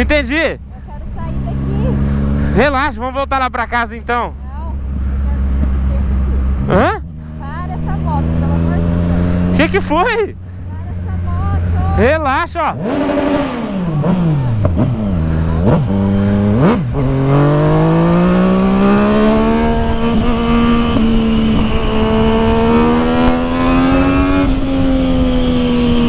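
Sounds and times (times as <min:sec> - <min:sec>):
motorcycle engine revving: 0:00.0 - 0:26.0
wind rush on microphone: 0:13.2 - 0:26.0.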